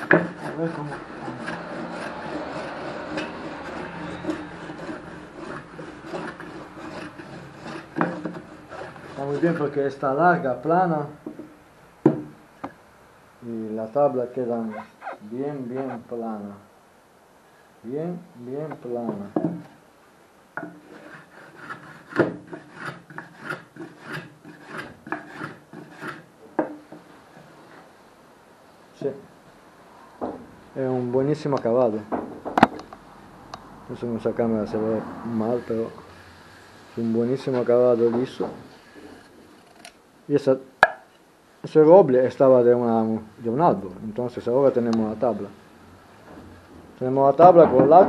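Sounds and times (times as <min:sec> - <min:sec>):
hand plane shaving wood: 0:00.0 - 0:09.8, 0:20.8 - 0:26.3
sharp wooden knocks: 0:40.8 - 0:41.1.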